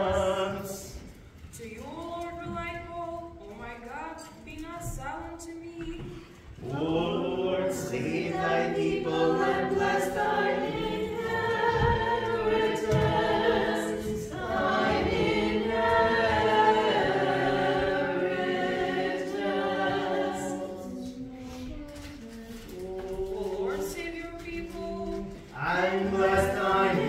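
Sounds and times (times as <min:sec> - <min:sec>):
choir singing a cappella chant: 0:00.0 - 0:01.0, 0:06.6 - 0:21.7, 0:25.2 - 0:27.0.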